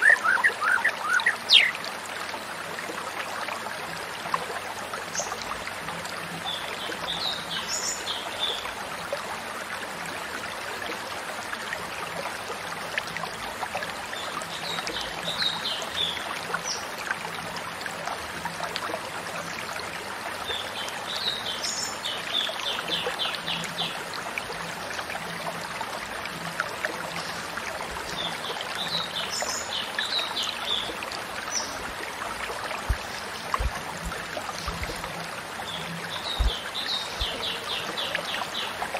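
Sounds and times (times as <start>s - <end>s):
bird chirps and trills: 0.0s - 1.8s
stream running: 0.0s - 38.9s.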